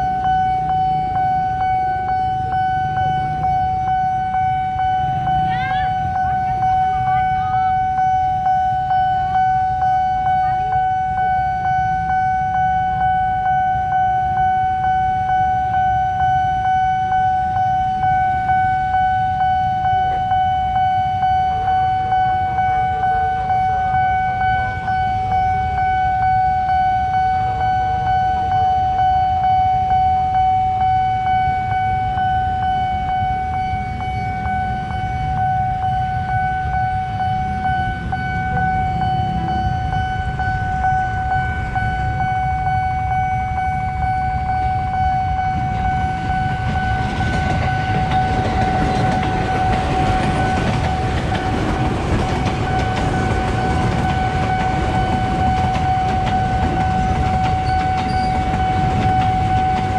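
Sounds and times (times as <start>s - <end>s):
level crossing warning tone pulsing: 0.0s - 59.9s.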